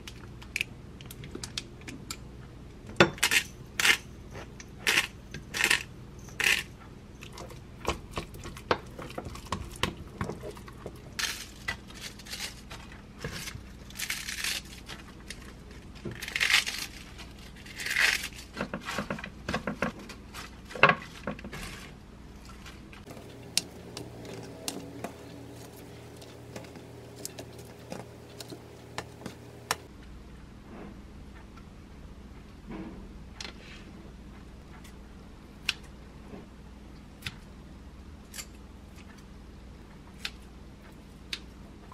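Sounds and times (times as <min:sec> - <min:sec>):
lettuce leaves tearing: 0:11.2 - 0:12.7, 0:13.4 - 0:15.4, 0:16.1 - 0:18.5, 0:23.1 - 0:29.8.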